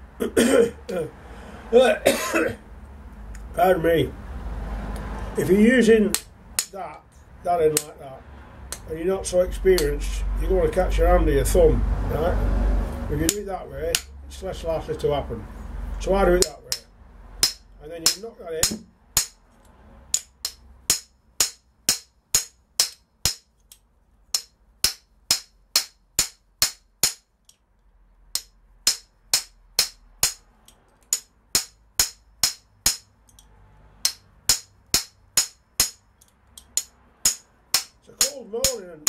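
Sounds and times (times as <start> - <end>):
hammer tapping metal: 6.1 - 7.1, 7.7 - 8.0, 13.2 - 14.2, 16.4 - 19.5, 20.1 - 23.5, 24.3 - 27.6, 28.3 - 39.0.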